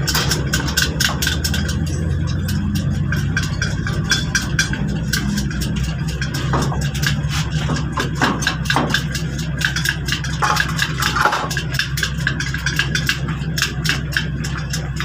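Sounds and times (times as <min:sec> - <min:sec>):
engine idling: 0:00.0 - 0:15.0
metal clank on ground: 0:03.1 - 0:11.8.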